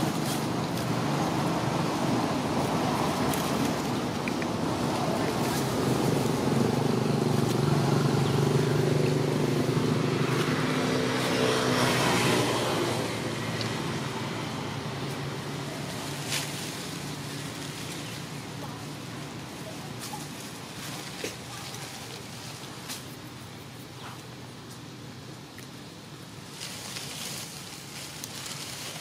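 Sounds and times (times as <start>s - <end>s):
vehicle engine passing by: 0.0s - 21.1s.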